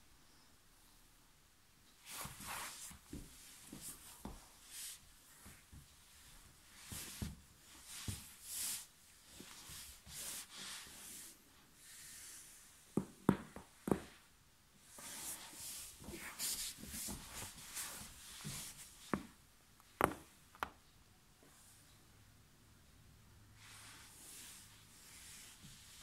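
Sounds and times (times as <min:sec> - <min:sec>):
sweater rustling on tile floor: 0:02.0 - 0:19.4, 0:23.6 - 0:26.0.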